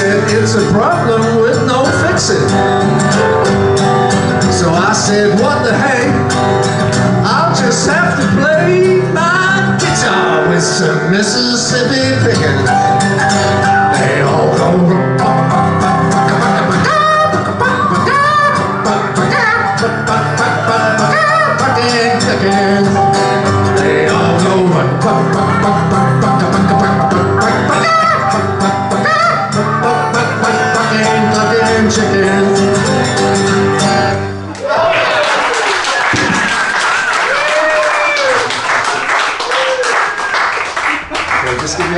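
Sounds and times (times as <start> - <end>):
man singing: 0.0 - 2.7, 4.4 - 6.4, 7.1 - 34.2
acoustic guitar strumming: 0.0 - 34.5
piano accompaniment: 0.0 - 34.5.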